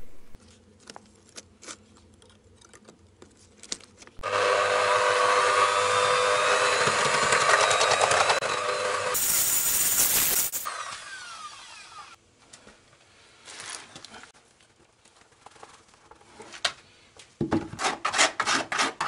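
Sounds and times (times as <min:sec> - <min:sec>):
drill mixer stirring mortar: 0:04.2 - 0:11.8.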